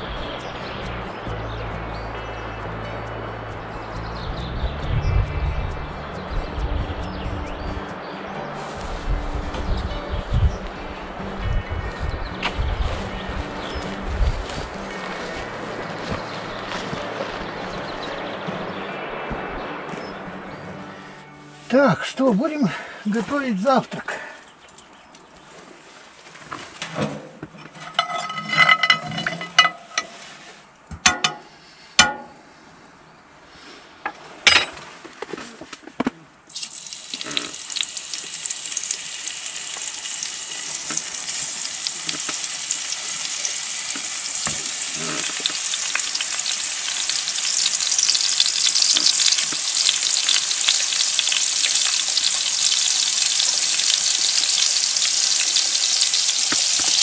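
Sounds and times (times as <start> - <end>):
sharp knocks and handling: 30.9 - 32.4
sausage sizzling in a frying pan: 36.5 - 57.0.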